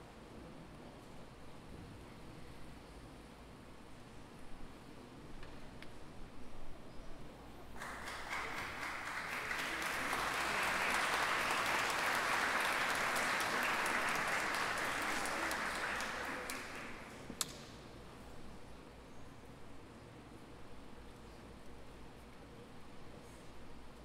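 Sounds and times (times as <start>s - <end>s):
audience applauding: 7.8s - 17.3s.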